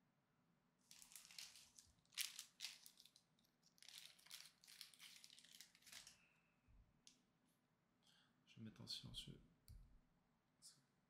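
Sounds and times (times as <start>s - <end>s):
foil wrapper crinkling: 0.9s - 6.2s.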